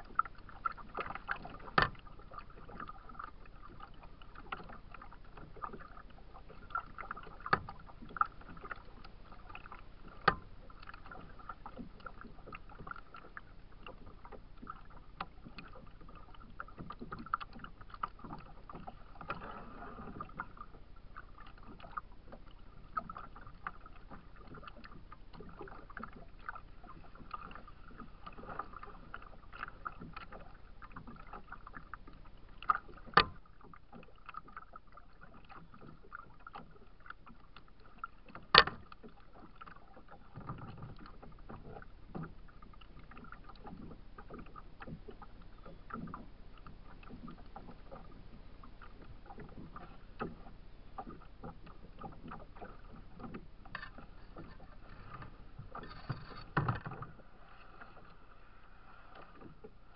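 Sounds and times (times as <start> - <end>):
waves lapping against kayak hull: 0.0 - 59.9
knocks against hull: 38.3 - 38.9, 55.2 - 57.2.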